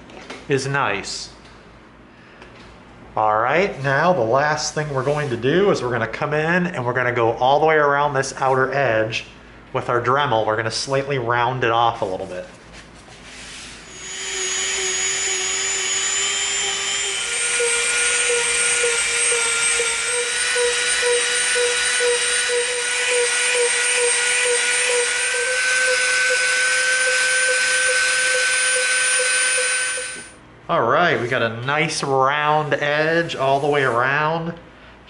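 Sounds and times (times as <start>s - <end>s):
rotary tool sanding whine: 13.2s - 30.4s.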